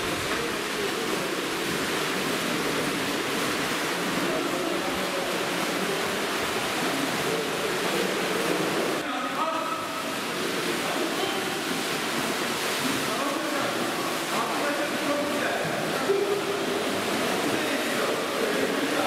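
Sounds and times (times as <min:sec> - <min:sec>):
swimmers splashing: 0:00.0 - 0:19.0.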